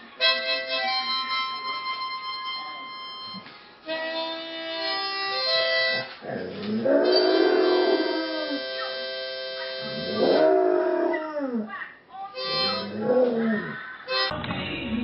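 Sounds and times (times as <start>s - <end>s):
harmonica playing chords: 0.0s - 6.2s, 7.0s - 10.4s, 12.4s - 13.1s, 14.1s - 15.0s
dog howling: 6.3s - 8.7s, 9.9s - 11.7s, 12.6s - 13.8s.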